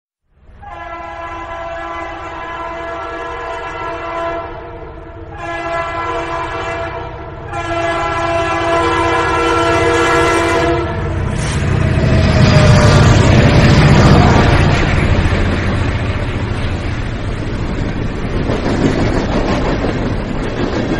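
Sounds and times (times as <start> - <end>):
train passing: 0.3 - 20.9
train horn blasts: 0.6 - 13.2.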